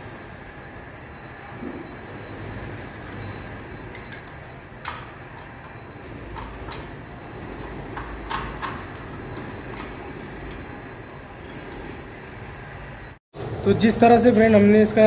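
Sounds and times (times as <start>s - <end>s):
low workshop hum: 0.0s - 15.0s
metallic clinks of wheel nuts: 3.9s - 7.0s.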